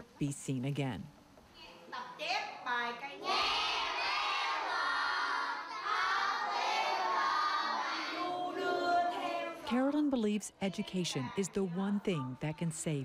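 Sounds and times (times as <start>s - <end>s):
children's voices: 3.0s - 9.7s.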